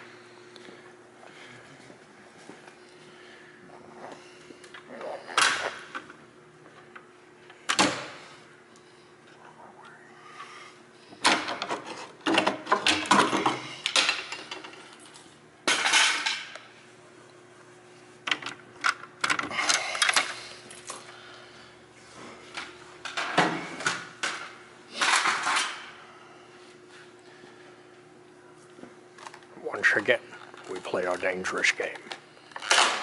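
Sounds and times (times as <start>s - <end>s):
faint steady hum: 0.0s - 33.0s
metal parts clanking and rattling: 25.0s - 25.9s.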